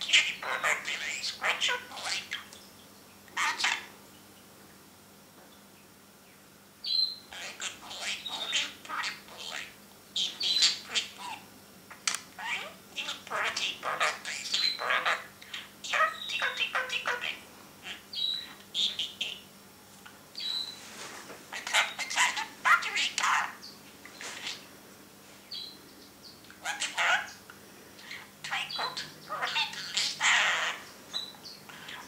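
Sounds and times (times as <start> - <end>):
budgerigar chattering: 0.0 - 2.5, 3.4 - 3.9, 6.9 - 19.5, 21.6 - 24.6, 26.6 - 27.4, 28.0 - 32.0.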